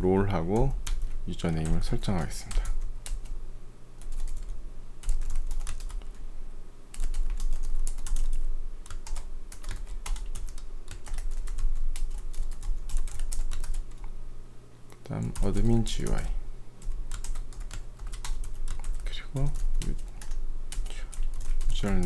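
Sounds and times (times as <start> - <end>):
keyboard typing: 0.4 - 3.4, 4.0 - 6.2, 6.9 - 14.1, 15.0 - 22.0.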